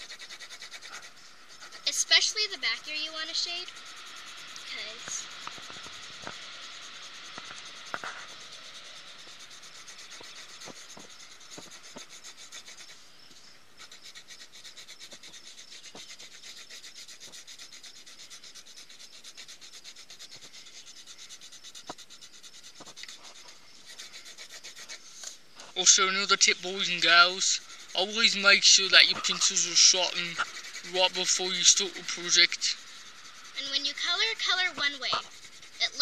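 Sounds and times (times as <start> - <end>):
pencil shading on paper: 0.0 - 36.0.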